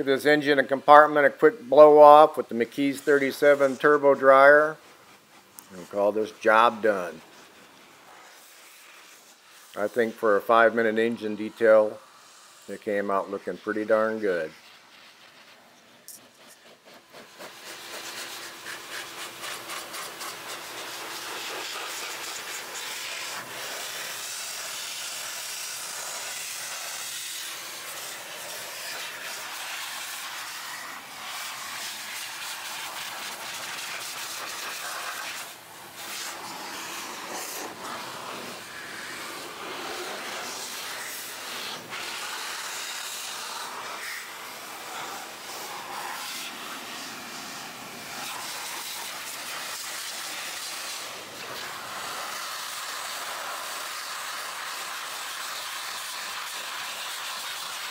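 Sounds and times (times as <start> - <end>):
car dryer blowing air: 1.8 - 15.5, 16.3 - 54.0.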